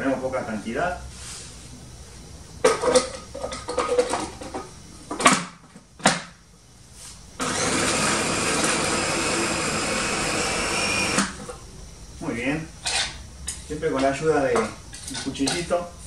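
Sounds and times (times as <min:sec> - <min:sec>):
food processor motor grinding: 0:07.4 - 0:11.4.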